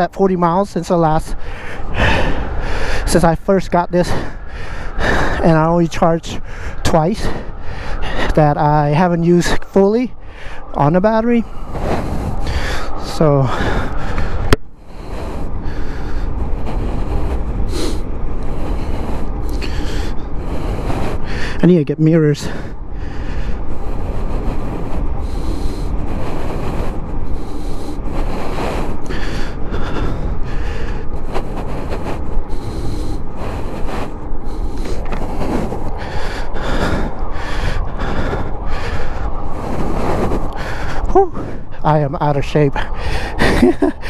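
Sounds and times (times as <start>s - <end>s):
rider breathing: 0.0s - 44.0s
wind rumbling over microphone: 0.0s - 44.0s.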